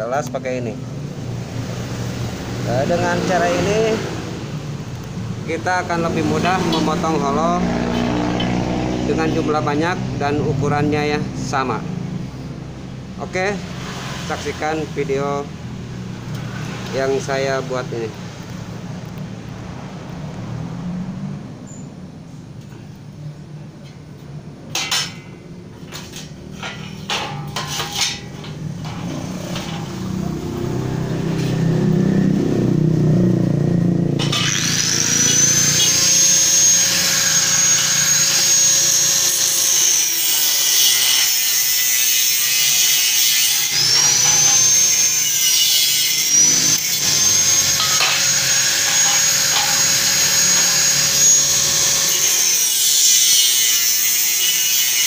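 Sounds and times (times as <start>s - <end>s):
angle grinder cutting steel: 5.4s - 10.5s, 25.9s - 32.1s, 34.0s - 55.0s
steel pieces knocking: 24.7s - 30.0s, 47.7s - 50.0s.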